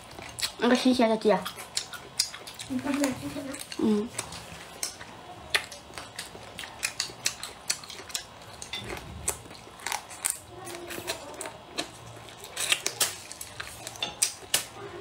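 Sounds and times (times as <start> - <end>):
chewing and mouth smacks: 0.0 - 0.6, 1.4 - 14.7.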